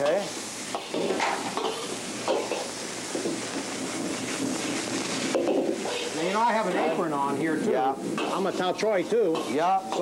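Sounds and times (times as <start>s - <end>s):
spatula knocking pan: 0.0s - 3.4s, 5.3s - 6.1s, 8.2s - 10.0s
food sizzling in a wok: 0.0s - 10.0s
metal spatula scraping pan: 0.8s - 7.1s, 8.1s - 10.0s.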